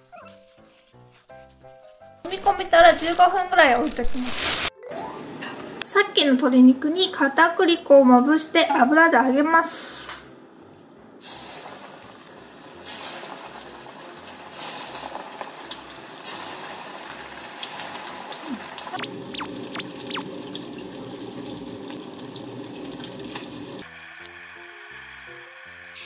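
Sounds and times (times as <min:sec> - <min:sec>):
chicken deep-frying in oil: 0:11.2 - 0:26.0.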